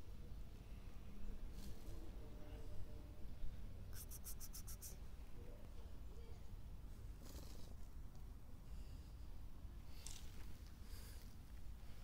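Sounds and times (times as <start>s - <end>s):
cat fur rubbing microphone: 4.0s - 5.0s.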